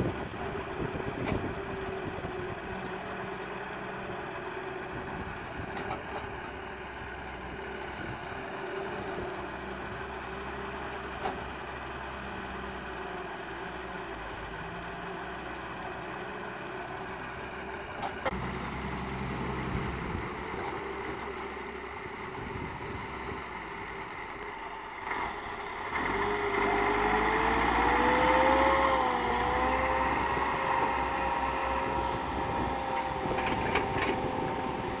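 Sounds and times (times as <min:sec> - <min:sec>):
diesel engines running: 0:00.0 - 0:35.0
tractor engine revving up: 0:25.0 - 0:35.0.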